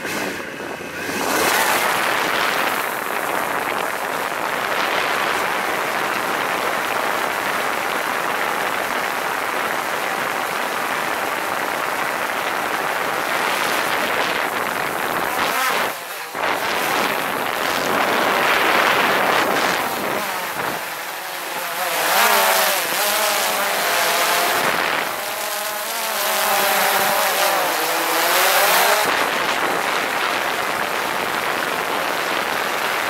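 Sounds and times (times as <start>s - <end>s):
drone propellers rushing hiss: 0.0s - 32.8s.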